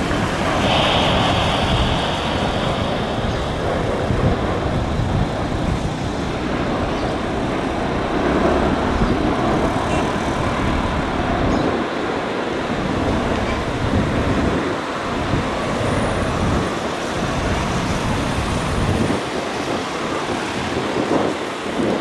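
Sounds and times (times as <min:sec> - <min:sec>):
jet engine high whine: 0:00.0 - 0:22.0
jet engines roaring: 0:00.0 - 0:22.0.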